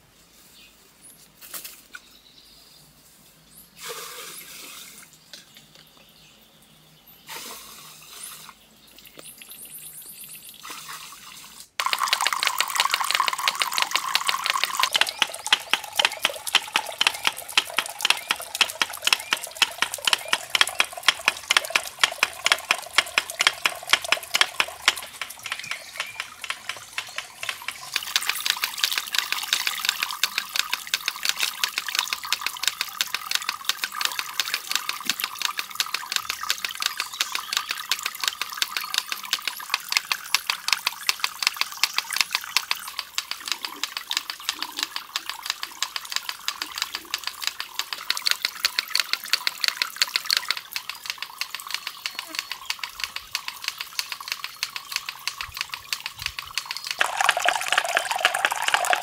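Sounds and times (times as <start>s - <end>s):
water splashing into pool: 10.7s - 36.9s, 57.0s - 59.0s.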